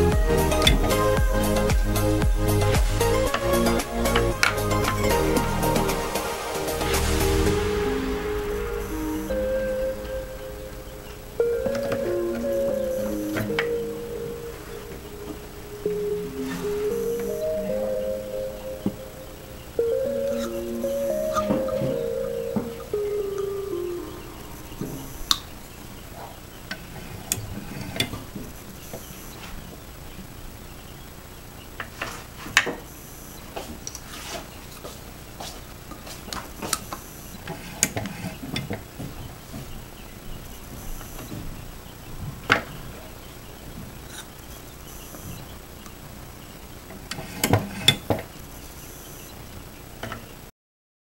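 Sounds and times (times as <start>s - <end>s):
background music: 0.0s - 25.6s.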